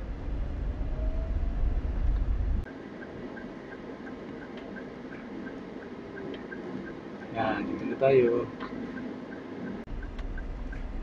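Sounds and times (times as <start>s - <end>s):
car rumbling: 0.0s - 11.0s
car indicator ticking: 2.6s - 11.0s.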